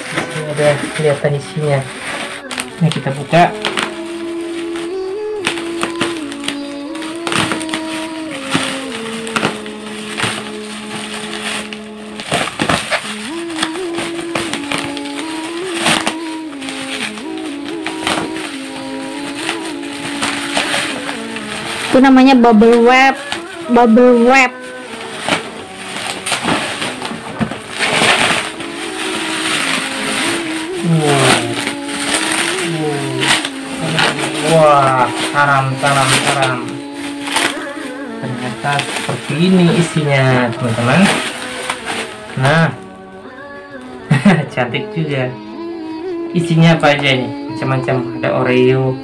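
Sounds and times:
background music with held notes: 0.0 - 49.0
bubble wrap crinkling: 0.0 - 49.0.

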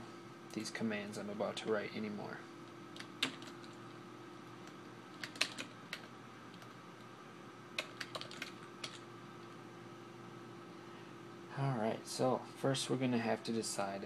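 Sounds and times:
faint steady hum: 0.0 - 14.0
computer keyboard key clicks: 5.2 - 6.7, 7.8 - 9.0.

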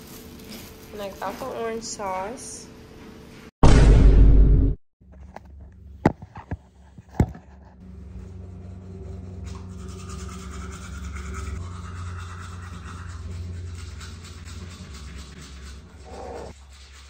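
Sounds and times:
electric toothbrush buzzing: 8.3 - 16.6.

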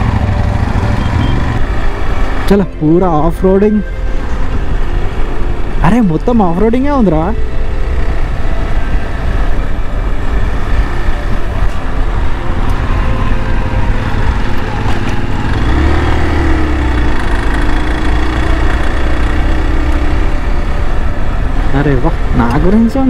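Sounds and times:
motorcycle engine running: 0.0 - 2.4, 12.0 - 21.7.

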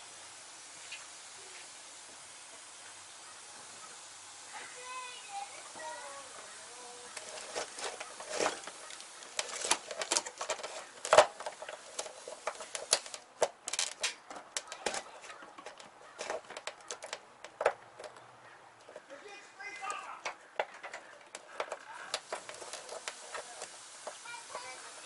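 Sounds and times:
wiring harness clicking and rustling: 7.1 - 19.1.

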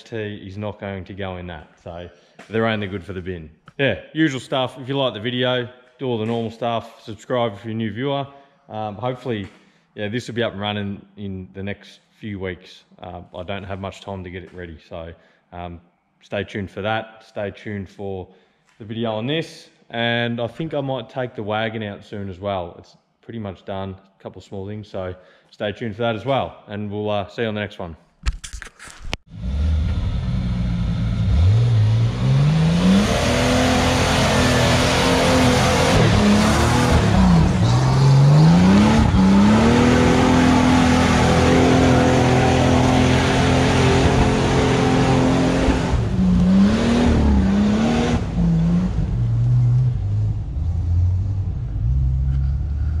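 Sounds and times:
vehicle engine accelerating: 29.4 - 53.0.

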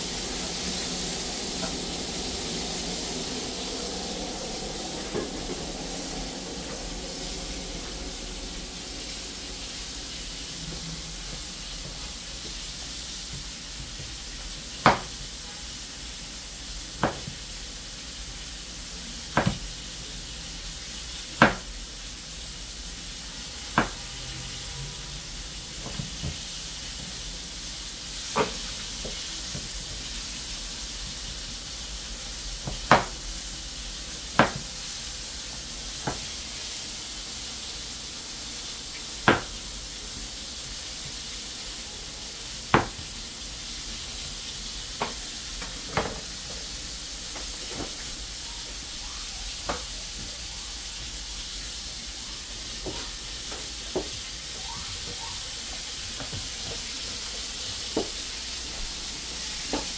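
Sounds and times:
food hissing on the stove: 0.0 - 59.9.

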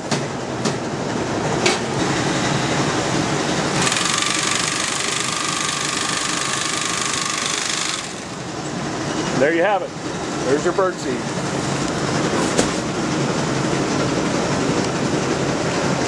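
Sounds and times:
mill machinery noise: 0.0 - 16.0
sewing machine stitching with whine: 3.7 - 8.4.

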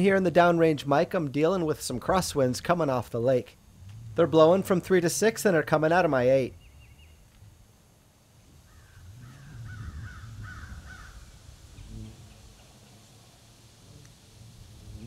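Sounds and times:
wind rumbling on microphone: 3.4 - 5.0, 8.5 - 15.0
bird calling: 8.6 - 13.0.

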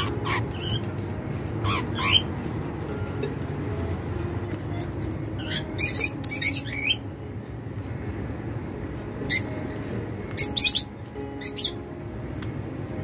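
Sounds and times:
cockatiels chirping: 0.0 - 0.9, 1.6 - 2.3, 5.4 - 7.0, 10.3 - 11.8.

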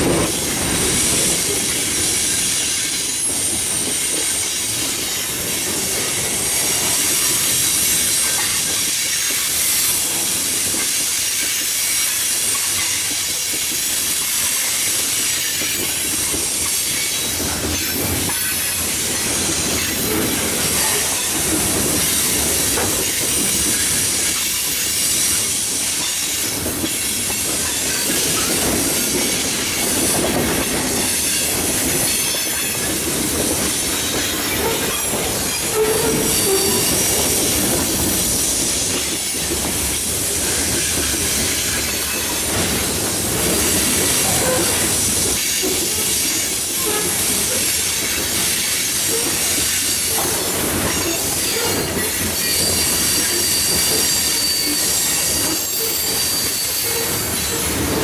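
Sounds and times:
train wheels on rail: 0.0 - 58.0
wheel squeal: 34.1 - 38.2, 43.8 - 57.9.

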